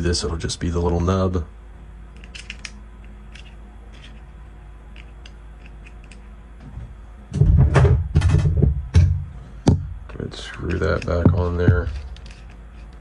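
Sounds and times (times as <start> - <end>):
metal gun parts clicking: 2.2 - 4.2, 5.0 - 6.2, 10.4 - 13.0
knocks and rubbing of parts: 5.0 - 13.0.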